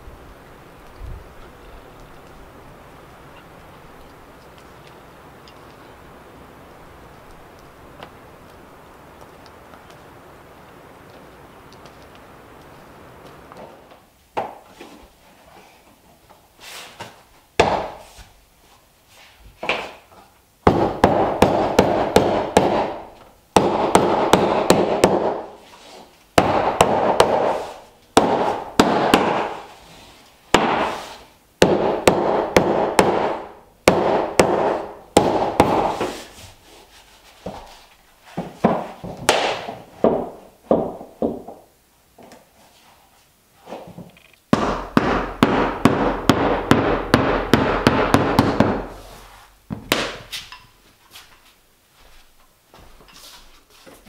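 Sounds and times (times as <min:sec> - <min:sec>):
mallet tapping floor planks: 0:17.6 - 0:18.0, 0:20.6 - 0:25.5, 0:26.4 - 0:29.7, 0:30.5 - 0:36.2, 0:38.4 - 0:41.7, 0:44.0 - 0:49.0, 0:49.7 - 0:50.6.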